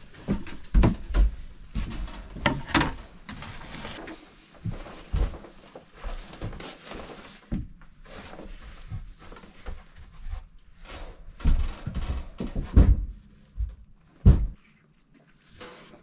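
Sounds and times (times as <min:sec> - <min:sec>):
footsteps on wooden boards: 0:00.1 - 0:04.0.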